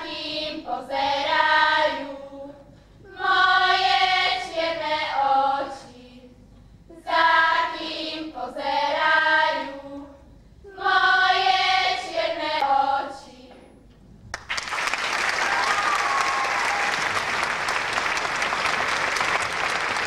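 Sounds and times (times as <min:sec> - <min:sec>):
children's choir singing: 0:00.0 - 0:13.9.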